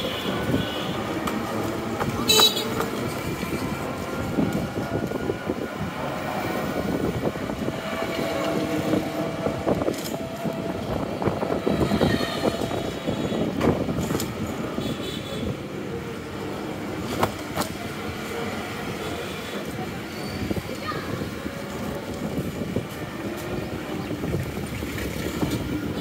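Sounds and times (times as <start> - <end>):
auto-rickshaw engines: 0.0 - 26.0
rickshaw frame rattling and clicking: 23.9 - 26.0.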